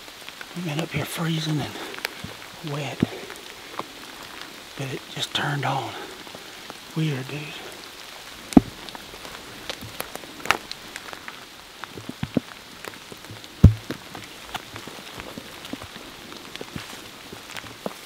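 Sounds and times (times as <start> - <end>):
faint steady rain hiss: 0.0 - 18.0
raindrops tapping: 0.0 - 18.0
heavy thud: 13.6 - 13.9.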